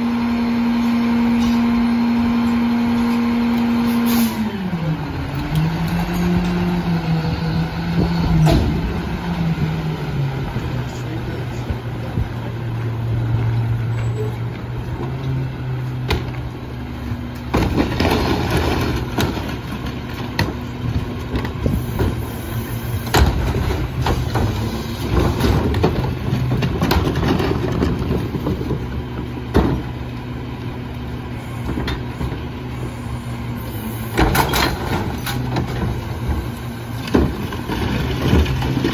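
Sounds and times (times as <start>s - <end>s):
garbage truck diesel engine: 0.0s - 38.9s
clatter of carts and trash: 16.0s - 30.3s, 33.6s - 38.9s.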